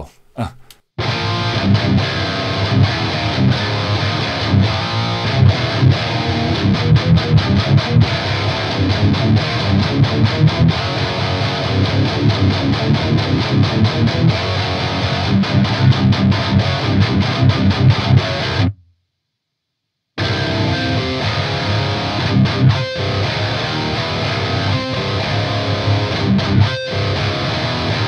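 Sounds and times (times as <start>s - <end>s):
distorted electric guitar riffing: 1.0s - 18.8s, 20.2s - 28.0s.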